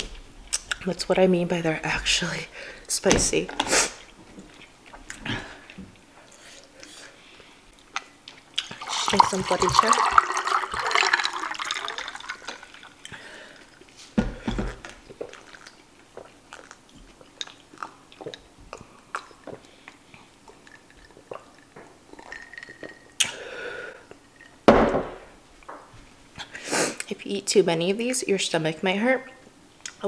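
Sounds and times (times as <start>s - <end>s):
water pouring over ice: 8.7s - 13.0s
swallowing: 14.7s - 24.6s.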